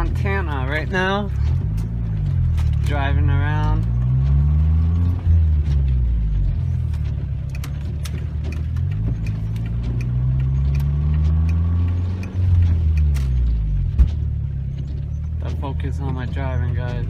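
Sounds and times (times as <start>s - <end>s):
car engine: 0.0s - 17.0s
road noise: 0.0s - 17.0s
light ticks: 6.9s - 13.4s.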